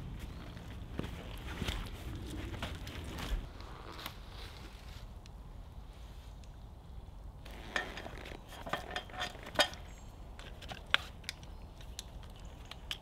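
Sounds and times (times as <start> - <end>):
metal camping kit clinking: 7.5 - 13.0.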